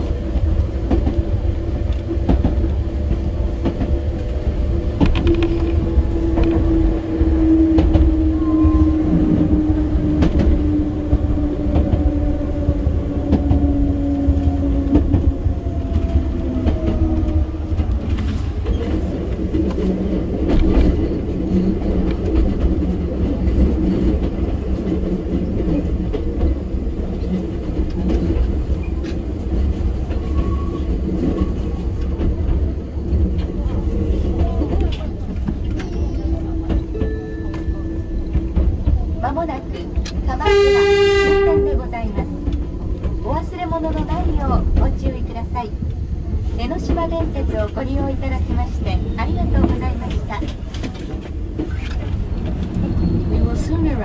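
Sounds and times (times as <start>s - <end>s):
train rumble: 0.0s - 54.0s.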